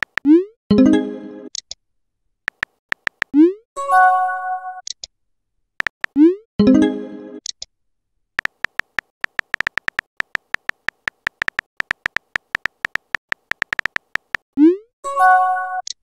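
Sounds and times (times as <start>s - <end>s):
keyboard typing clicks: 0.0s - 0.4s, 2.5s - 3.4s, 5.8s - 6.2s, 8.4s - 14.5s.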